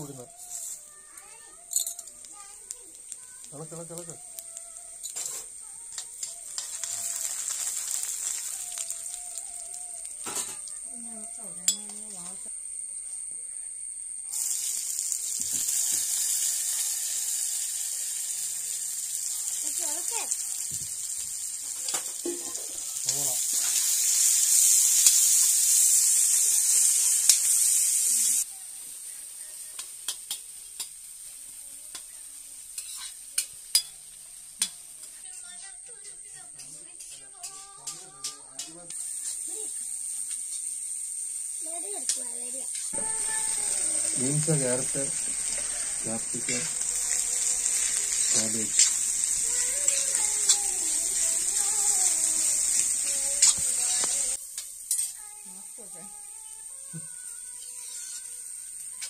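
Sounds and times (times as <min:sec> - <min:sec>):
onions sizzling in hot oil: 0:00.0 - 0:59.0
metal spoon scraping pan: 0:32.8 - 0:34.0, 0:46.4 - 0:51.9, 0:53.0 - 0:54.3.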